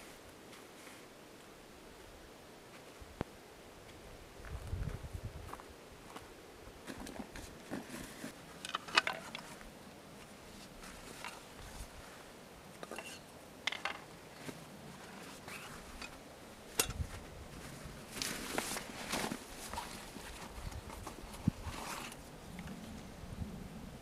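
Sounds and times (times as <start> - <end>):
rustling in a backpack: 6.8 - 8.6, 9.2 - 12.4, 14.3 - 16.2, 17.0 - 22.9.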